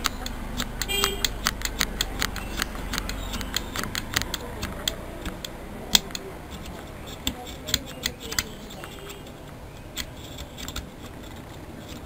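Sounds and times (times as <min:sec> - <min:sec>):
small clicks and scrapes of wiring: 0:00.0 - 0:12.0.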